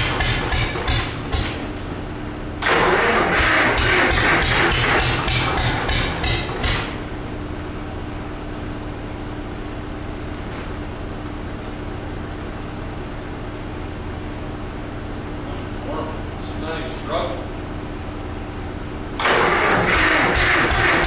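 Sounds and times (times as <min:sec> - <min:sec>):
steady hum: 0:00.0 - 0:21.0
diesel engine turning over: 0:02.4 - 0:07.2, 0:19.1 - 0:21.0.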